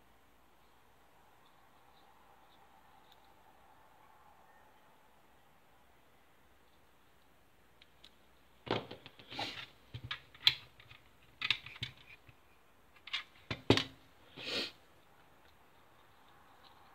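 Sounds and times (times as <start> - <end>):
plastic parts clicking and knocking: 9.9 - 14.0.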